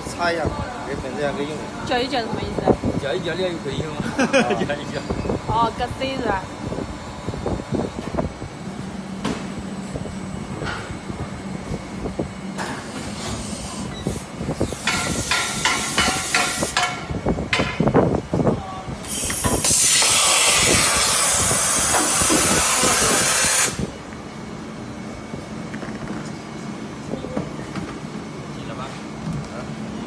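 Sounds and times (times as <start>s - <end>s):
compressed air hissing: 13.2s - 16.8s, 19.0s - 23.9s.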